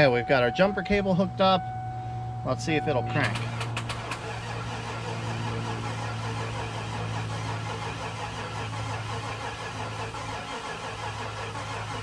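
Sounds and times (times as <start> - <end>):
engine cranking not starting: 3.2 - 12.0.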